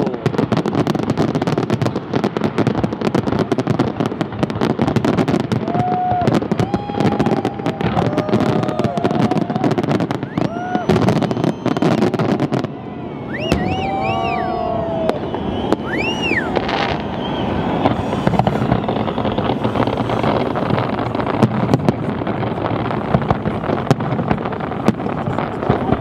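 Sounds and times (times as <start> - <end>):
fireworks bursting and crackling: 0.0 - 26.0
firework whistles: 4.6 - 23.4.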